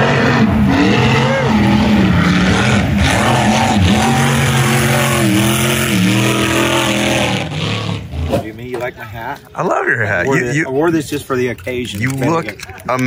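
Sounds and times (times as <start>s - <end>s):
speedboat engine at high revs: 0.0s - 8.5s.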